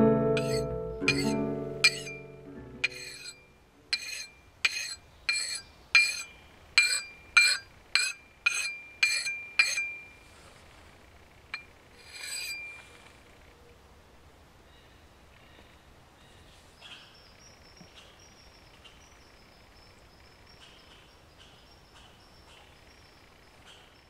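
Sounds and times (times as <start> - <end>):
sharpening stone on axe blade: 0.4 - 2.2, 2.8 - 10.0, 12.0 - 12.9
axe head ringing: 0.4 - 10.2, 11.5 - 12.8.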